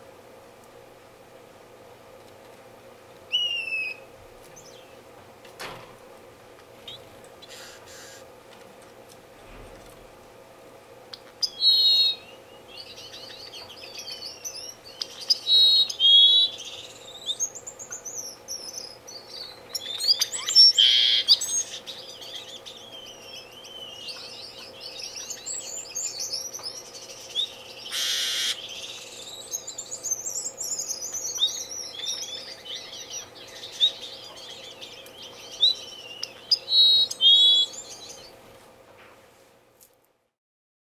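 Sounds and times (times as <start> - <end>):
faint steady hum: 0.0 - 40.4
bird chirping and whistling: 3.3 - 5.0, 11.4 - 38.3.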